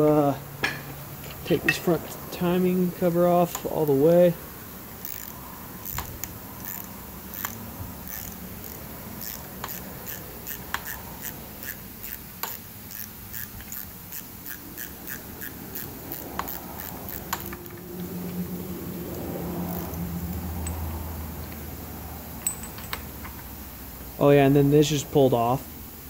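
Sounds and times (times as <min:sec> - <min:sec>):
faint steady hum: 0:00.0 - 0:26.0
socket ratchet clicking: 0:03.4 - 0:04.0, 0:05.0 - 0:21.7.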